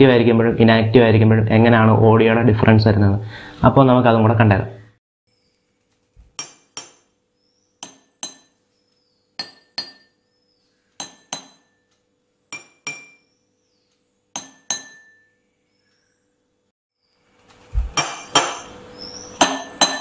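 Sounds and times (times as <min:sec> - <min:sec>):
spoon tapping glasses: 0:11.0 - 0:11.8, 0:12.5 - 0:13.3, 0:14.4 - 0:15.3.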